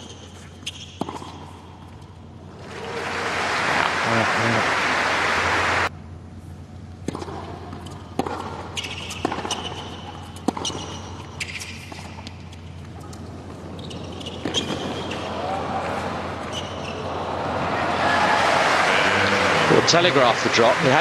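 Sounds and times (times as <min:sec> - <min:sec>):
shoes squeaking on court: 0:00.0 - 0:01.9, 0:07.1 - 0:17.2
ball bouncing: 0:00.7 - 0:01.5
racket striking ball: 0:00.8 - 0:01.5, 0:07.0 - 0:12.1.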